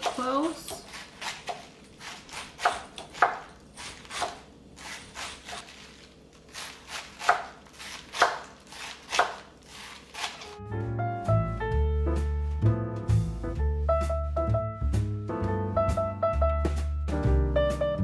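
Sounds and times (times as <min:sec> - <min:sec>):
knife chopping cabbage on wooden board: 0:00.0 - 0:05.7, 0:06.5 - 0:10.6
music: 0:10.5 - 0:18.0.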